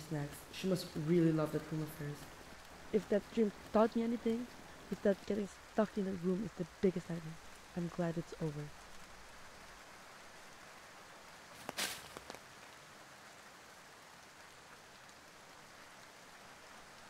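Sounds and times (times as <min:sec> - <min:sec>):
light rain hissing: 0:00.0 - 0:17.0
brief rustle: 0:11.5 - 0:12.4.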